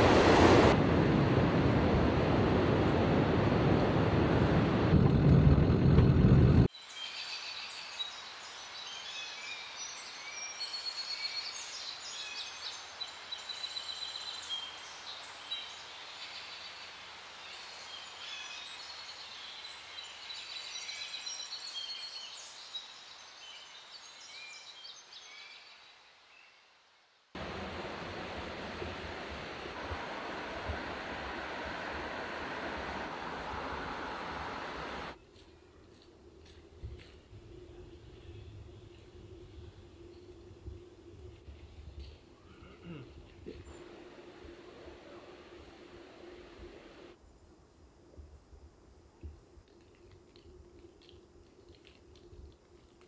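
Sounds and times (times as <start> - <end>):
steady rushing noise: 0.0 - 6.7, 27.4 - 35.2, 43.6 - 47.2
vehicle road noise: 0.0 - 6.7, 27.4 - 35.2.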